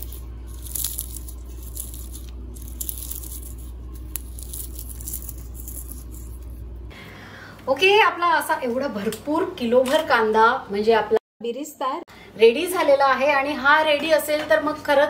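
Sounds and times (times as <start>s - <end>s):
fried onions crackling and crunching: 0.0s - 6.9s.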